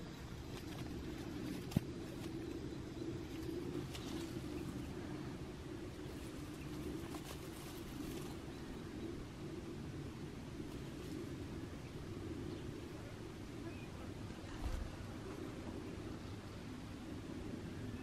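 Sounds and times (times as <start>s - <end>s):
low steady hum: 0.0s - 18.0s
cats scuffling on dry leaves: 5.9s - 8.5s.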